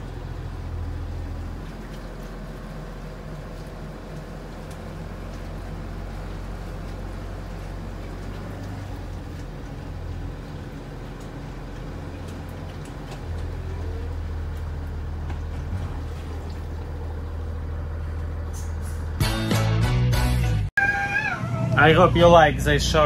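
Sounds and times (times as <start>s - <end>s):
floodwater surging and splashing: 0.0s - 18.4s
bus engine running: 0.0s - 20.7s, 21.4s - 23.0s.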